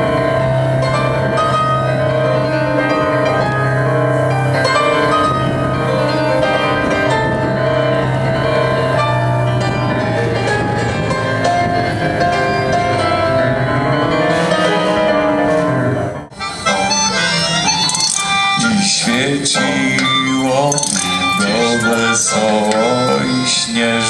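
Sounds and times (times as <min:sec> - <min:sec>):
long-held low bass notes: 0:00.0 - 0:16.3
keyboard melody: 0:00.0 - 0:24.0.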